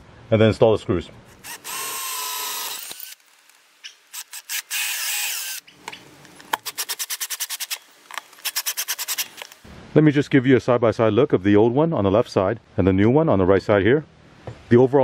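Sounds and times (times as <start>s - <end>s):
cordless drill whining: 1.4s - 3.2s, 4.1s - 5.6s.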